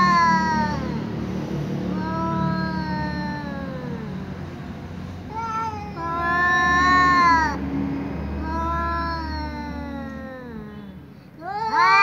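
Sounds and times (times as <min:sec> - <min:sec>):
cats meowing: 0:00.0 - 0:01.1, 0:01.9 - 0:04.2, 0:05.2 - 0:07.6, 0:08.4 - 0:12.0.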